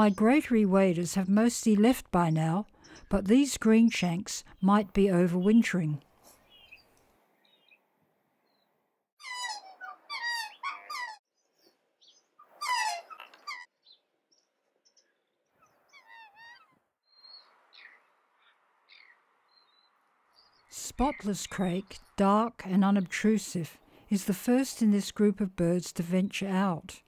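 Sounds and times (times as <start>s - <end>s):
faint bird chirps: 6.4s - 7.8s, 8.4s - 22.2s
waterbirds calling: 9.2s - 23.3s.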